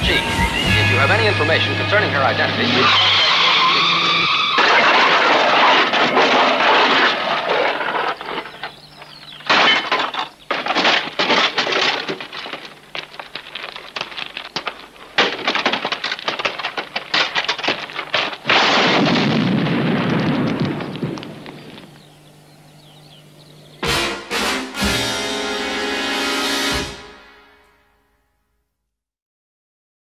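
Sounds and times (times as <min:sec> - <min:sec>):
crashing metal impacts: 0:02.6 - 0:22.0, 0:23.8 - 0:27.6
explosion with low rumble: 0:18.0 - 0:21.9.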